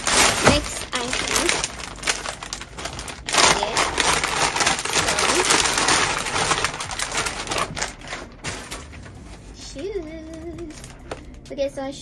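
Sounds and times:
plastic packaging crinkling: 0.0s - 11.4s.

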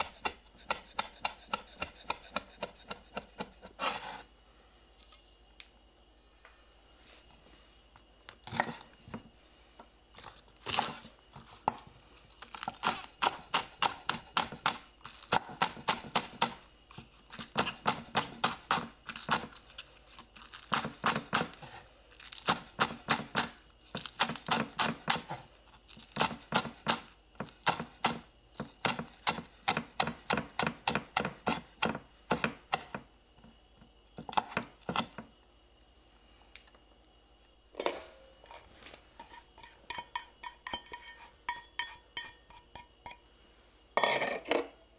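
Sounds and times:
knife chopping on wooden board: 0.0s - 4.0s, 12.6s - 16.6s, 26.2s - 33.0s.

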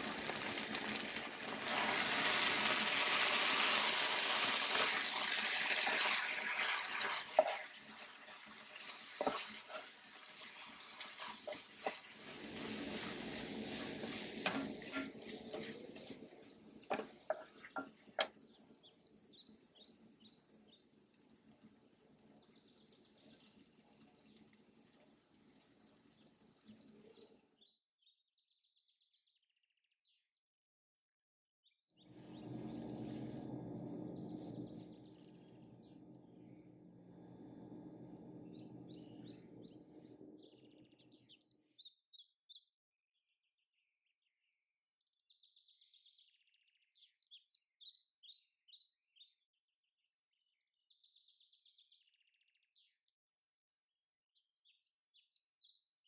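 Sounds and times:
small birds chirping: 3.6s - 24.5s, 38.4s - 56.0s
faint hiss: 8.5s - 18.2s
low sustained hum: 32.1s - 41.2s.

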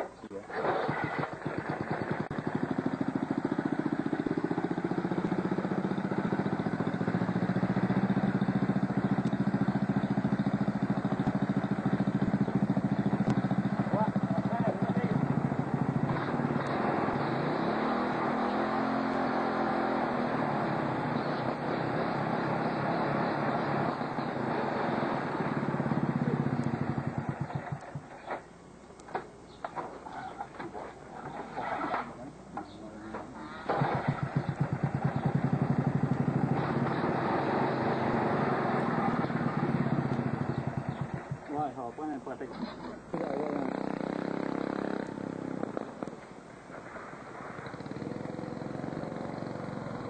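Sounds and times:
go-kart engine putter: 0.0s - 3.6s, 26.0s - 37.4s
go-kart engine revving: 0.0s - 28.4s, 30.0s - 32.3s, 33.1s - 41.7s, 42.5s - 50.0s.

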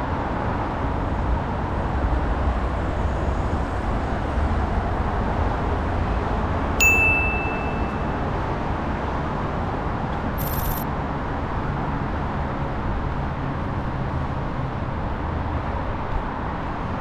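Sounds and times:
street traffic: 0.0s - 17.0s
high sparkling chime: 6.8s - 8.3s.

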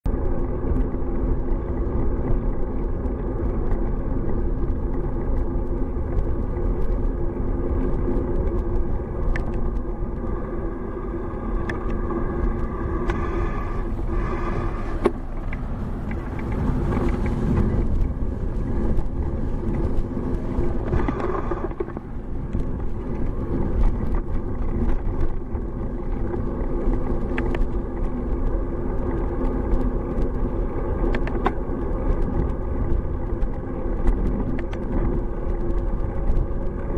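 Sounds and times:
wind and road noise: 0.0s - 36.9s
cars passing: 10.4s - 22.4s.

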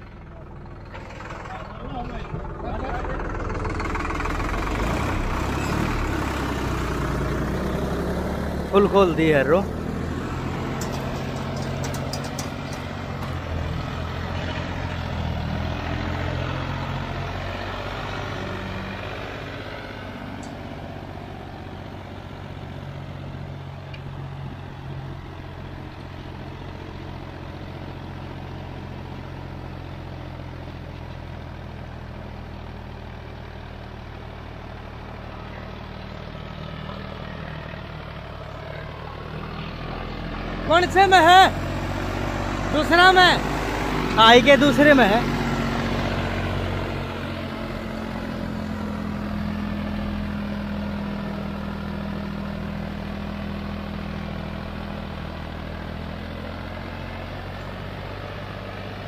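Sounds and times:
tractor diesel engine under load: 0.0s - 59.0s.

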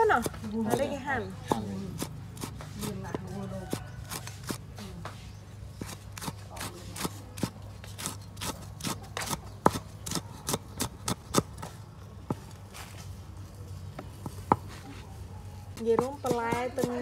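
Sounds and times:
cleaver chopping on wooden board: 0.0s - 4.6s, 5.8s - 11.7s, 15.8s - 17.0s.

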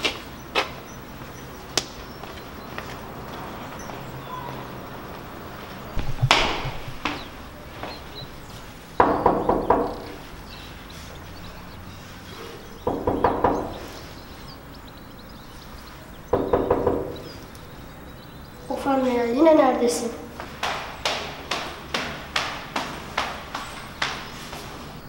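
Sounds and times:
knuckles knocking on wooden door: 16.3s - 17.2s.

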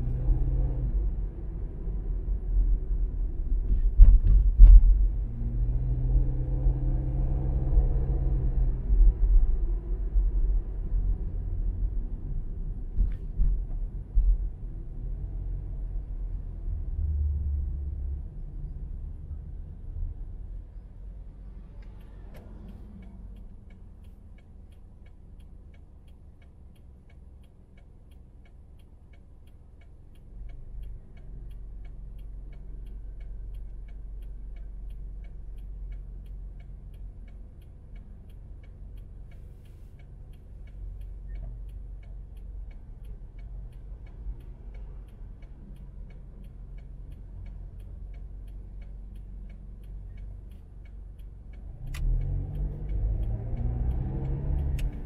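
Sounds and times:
engine rumble: 0.0s - 55.0s
traffic: 0.0s - 55.0s
turn signal ticking: 21.2s - 55.0s.

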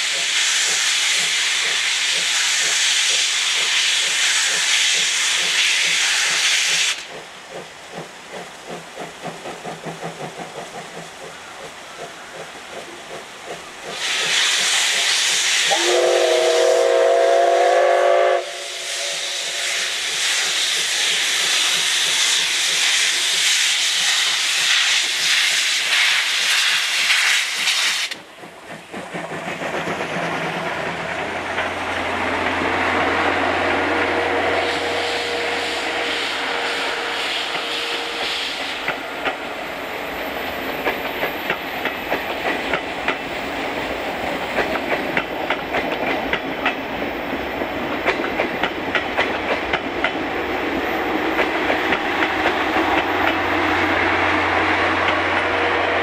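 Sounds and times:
steam hissing: 0.0s - 56.0s
steam locomotive whistle: 14.0s - 20.5s, 33.0s - 38.8s, 53.4s - 56.0s
locomotive rumbling: 28.1s - 56.0s.

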